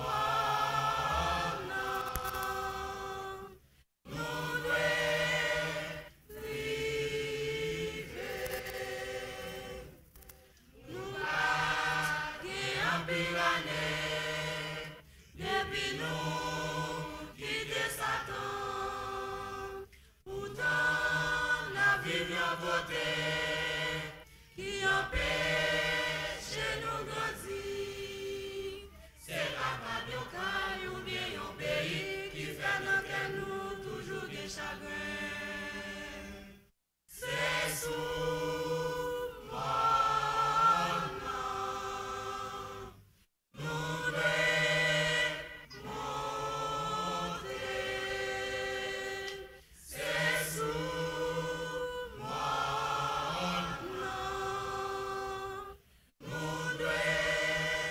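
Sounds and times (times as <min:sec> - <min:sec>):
choir singing: 0:00.0 - 0:57.9.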